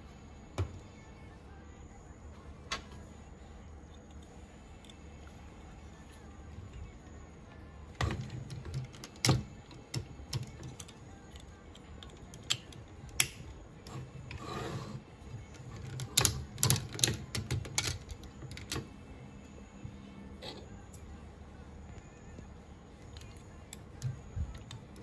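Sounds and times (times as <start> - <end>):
plastic toy parts clicking and snapping: 8.3 - 13.5, 15.5 - 18.9.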